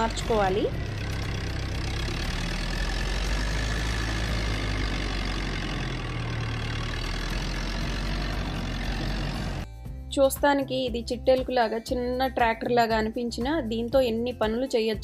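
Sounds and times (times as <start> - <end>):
forklift engine running: 0.0 - 9.7.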